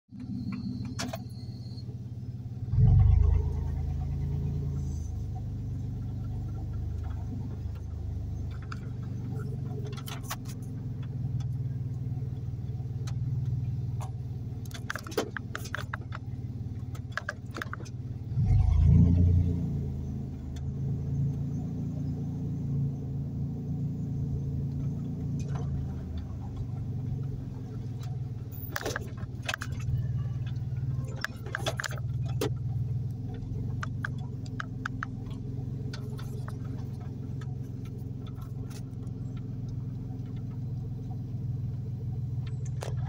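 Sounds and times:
car engine and road noise: 0:00.0 - 0:43.0
short clicks and rattles: 0:13.0 - 0:18.0, 0:27.9 - 0:40.6.

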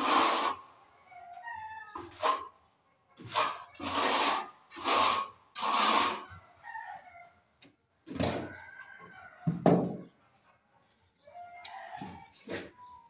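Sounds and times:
trowel scraping across wall: 0:00.0 - 0:00.7, 0:02.0 - 0:02.6, 0:03.2 - 0:06.4.

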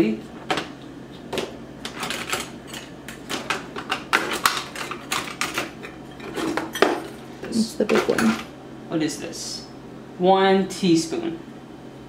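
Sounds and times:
metal utensils clattering in drawer: 0:01.9 - 0:07.2.

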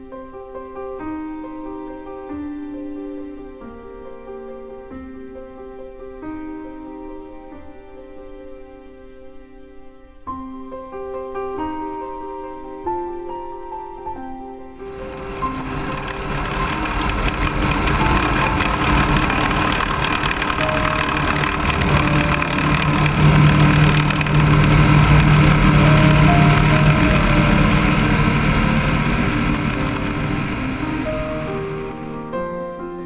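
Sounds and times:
propeller aircraft engine: 0:14.8 - 0:32.1.

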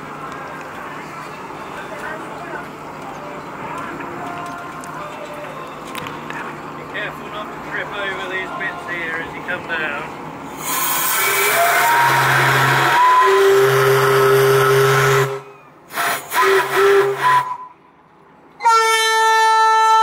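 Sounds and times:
hoarse ship whistle blast: 0:10.6 - 0:17.8, 0:18.6 - 0:20.0
deep ship horn note: 0:11.1 - 0:15.5.

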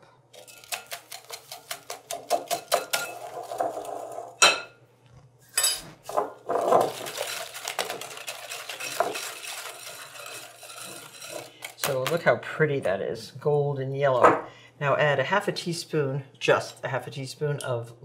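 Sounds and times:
whisk beating in glass bowl: 0:00.4 - 0:03.3, 0:06.5 - 0:11.9
whisk clinking against glass: 0:01.6 - 0:03.3, 0:06.9 - 0:11.5.

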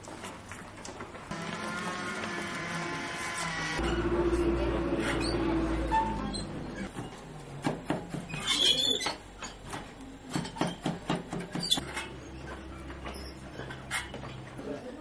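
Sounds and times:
loom squeak: 0:05.0 - 0:07.2, 0:08.3 - 0:09.6, 0:11.5 - 0:14.5.

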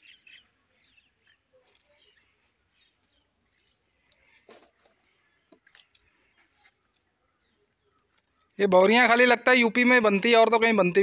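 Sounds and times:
faint bird chirps: 0:00.0 - 0:08.6.

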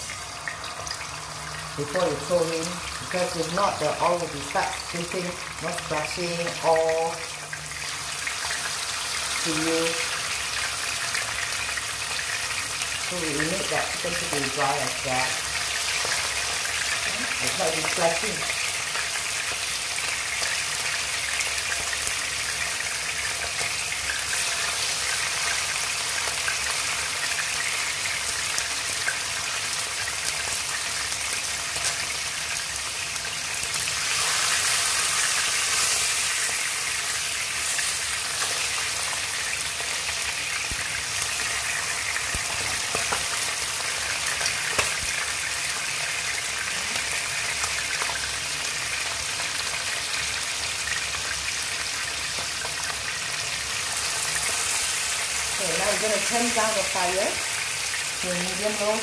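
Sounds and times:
chicken frying in oil: 0:00.0 - 0:59.0.

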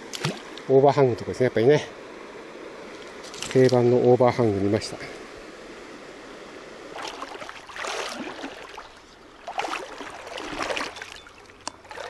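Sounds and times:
river water running: 0:00.0 - 0:12.0
water sloshing: 0:06.8 - 0:12.0.

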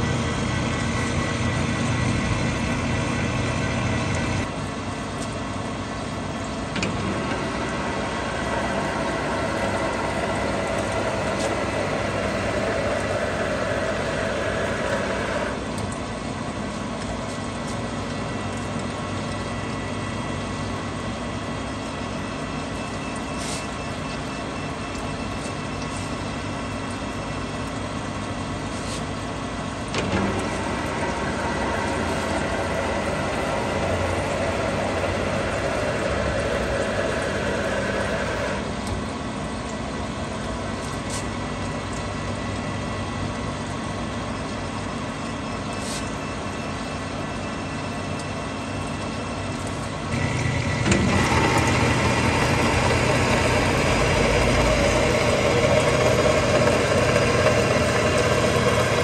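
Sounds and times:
metal lathe humming: 0:06.8 - 0:15.6, 0:29.9 - 0:38.9, 0:50.1 - 0:59.0.

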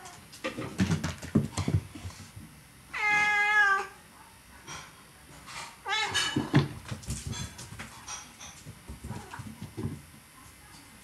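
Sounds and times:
cat meowing: 0:03.0 - 0:04.0.

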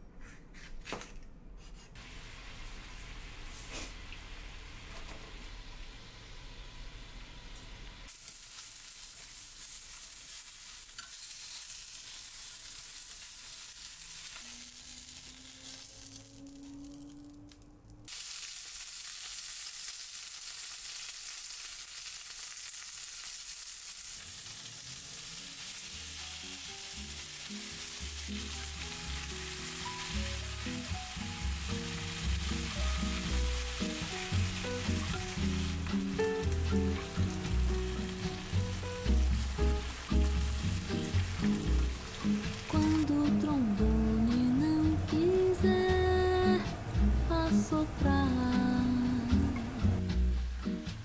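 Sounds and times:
water boiling in a pan: 0:02.0 - 0:17.2, 0:18.1 - 0:43.2
meat sizzling in a frying pan: 0:08.0 - 0:17.0, 0:18.1 - 0:43.1
background music: 0:25.9 - 0:51.0.

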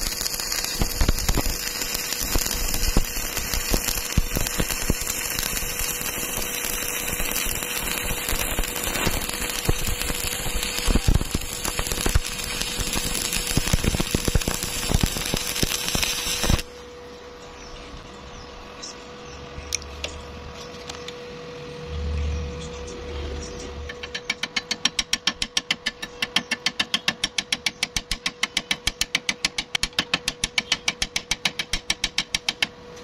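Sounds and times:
welding arc crackling and popping: 0:00.0 - 0:16.7.

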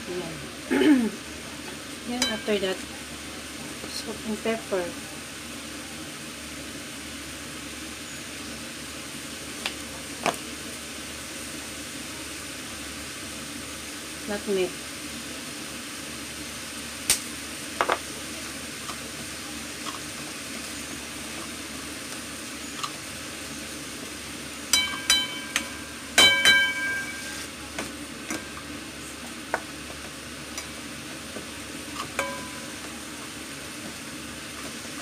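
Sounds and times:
meat sizzling in a pan: 0:00.0 - 0:35.0
spatula knocking against pan: 0:24.7 - 0:27.1, 0:32.2 - 0:32.7.

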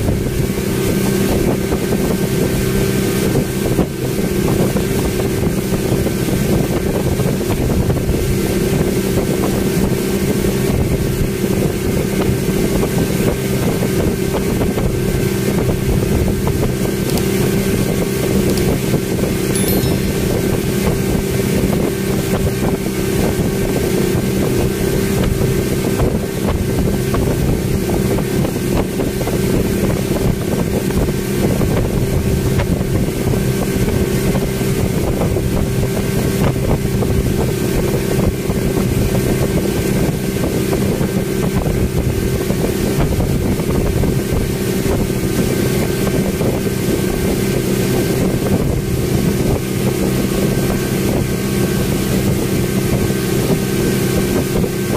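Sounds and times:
speedboat engine running: 0:00.0 - 0:54.9
wind rushing past microphone: 0:00.0 - 0:54.9.

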